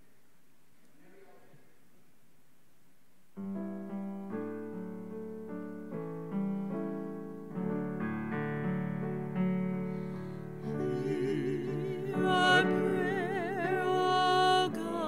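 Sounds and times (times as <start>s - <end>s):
piano playing gentle chords: 3.4s - 15.0s.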